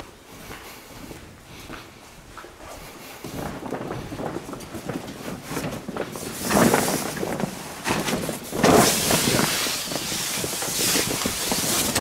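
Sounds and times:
rubber boot footsteps: 0.0s - 9.5s
plastic tarp rustling and crackling: 3.2s - 12.0s.

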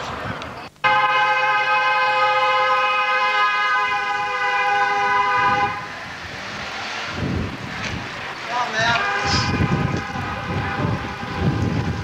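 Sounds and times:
street noise: 0.0s - 12.0s
vehicle horn blast: 0.8s - 5.9s, 8.8s - 12.0s.

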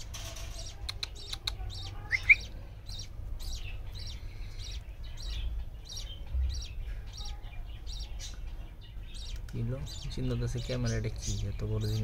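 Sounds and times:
budgerigars chirping: 0.3s - 12.0s
low background rumble: 0.6s - 12.0s.

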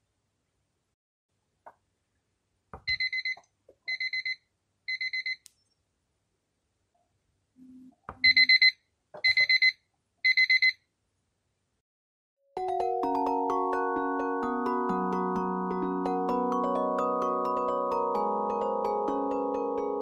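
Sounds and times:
alarm clock beeping: 8.2s - 10.8s.

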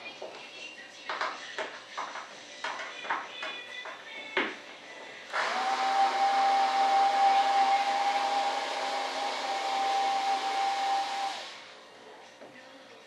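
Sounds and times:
electric blower motor whining: 5.3s - 11.8s.

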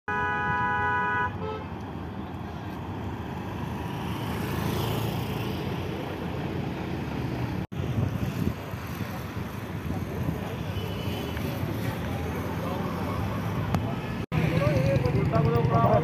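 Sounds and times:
vehicle horn blaring: 0.1s - 1.7s
road traffic noise: 0.1s - 16.0s
motor scooter passing: 3.0s - 16.0s.

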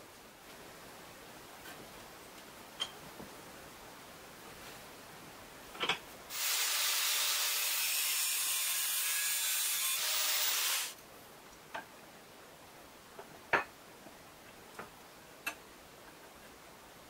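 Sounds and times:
angle grinder grinding steel: 6.3s - 10.9s.

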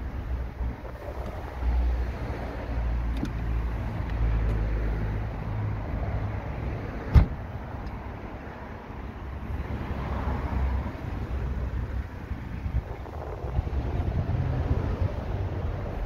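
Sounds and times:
wind rumble on microphone: 0.0s - 8.1s, 9.4s - 16.0s
car tailgate thumping shut: 7.1s - 7.4s.

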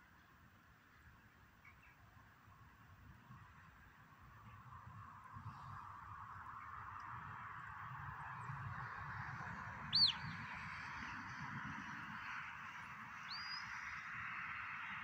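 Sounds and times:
wind rumbling on microphone: 2.4s - 15.0s
shepherd's whistle: 9.9s - 10.2s.

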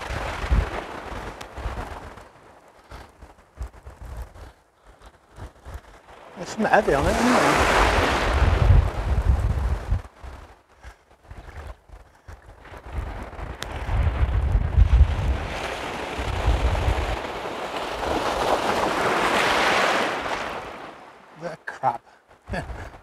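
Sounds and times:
waves washing up pebble beach: 0.0s - 2.5s, 6.0s - 10.4s, 14.8s - 22.0s
wind buffeting microphone: 0.0s - 21.3s, 22.2s - 23.0s.

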